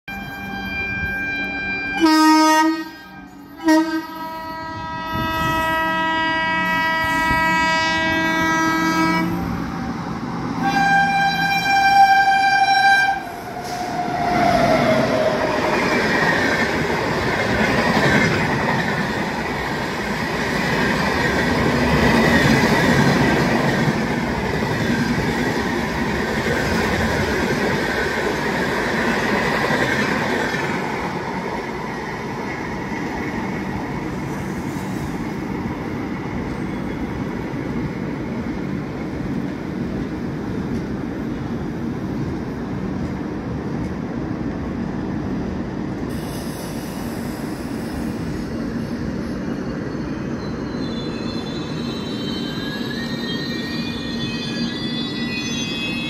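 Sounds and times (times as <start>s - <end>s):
train horn blasts: 0.1s - 9.5s, 10.6s - 13.4s
train wheels rushing on rails: 5.1s - 56.0s.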